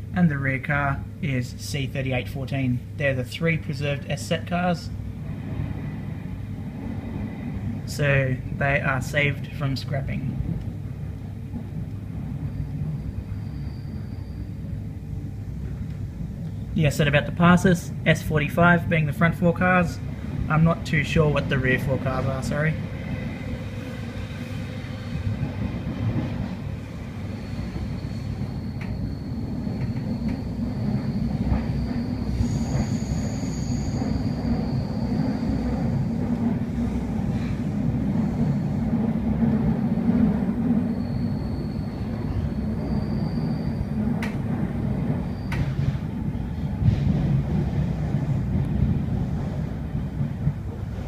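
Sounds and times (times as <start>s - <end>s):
train wheels rumbling on rails: 0.0s - 51.0s
faint high whine: 12.3s - 18.4s, 26.1s - 36.3s, 40.6s - 44.4s.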